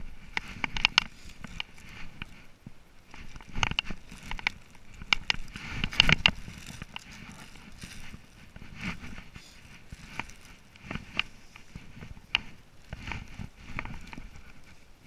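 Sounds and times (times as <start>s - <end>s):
footsteps on grass: 0.0s - 14.9s
clothing rustling: 0.0s - 15.0s
sharp clicks and knocks: 0.3s - 2.4s, 3.1s - 14.6s.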